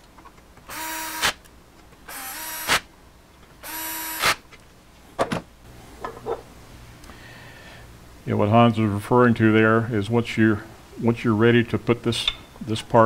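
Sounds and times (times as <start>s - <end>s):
cordless drill bursts: 0.7s - 1.4s, 2.1s - 2.8s, 3.6s - 4.4s.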